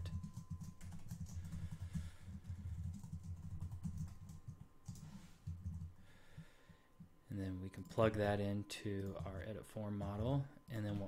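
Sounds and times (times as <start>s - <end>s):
typing on computer keyboard: 0.0s - 6.0s.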